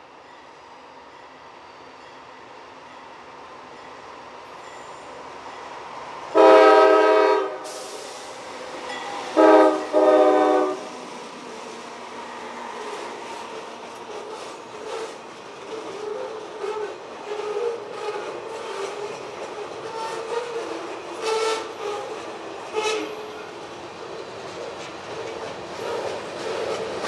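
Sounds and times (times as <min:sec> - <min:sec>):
freight train rumble: 0:01.0 - 0:27.0
train air horn blasts: 0:06.3 - 0:08.2, 0:09.2 - 0:11.0, 0:21.2 - 0:23.4.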